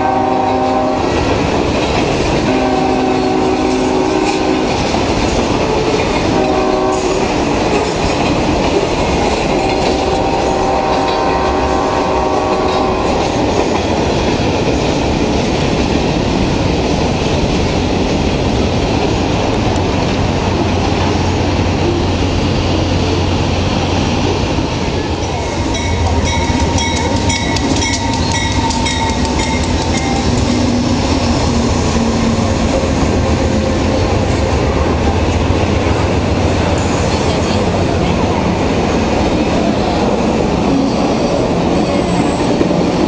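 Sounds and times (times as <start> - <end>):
freight train rumbling past: 0.0 - 43.0
passenger train rumbling past: 0.0 - 43.0
wheels clattering over rail joints: 7.2 - 11.4, 12.5 - 34.2.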